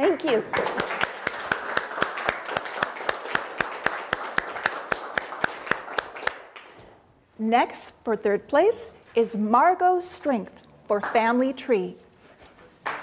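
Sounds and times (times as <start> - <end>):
audience applauding: 0.2 - 6.7.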